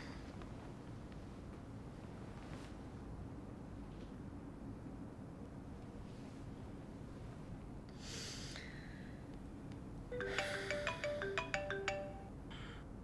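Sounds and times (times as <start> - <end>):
marimba ringtone: 10.1 - 12.4.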